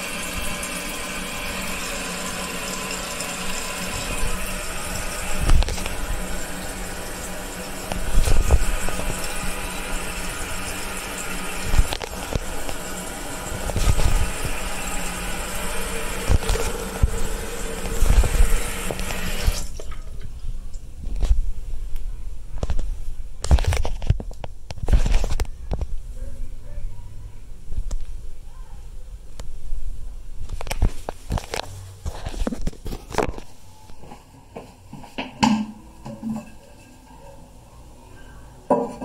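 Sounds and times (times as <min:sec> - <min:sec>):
water hissing through fill valve: 0:00.0 - 0:20.2.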